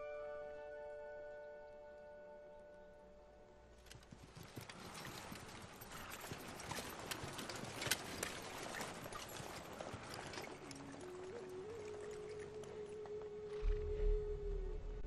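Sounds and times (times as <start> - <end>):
hooves clopping: 3.7 - 14.4.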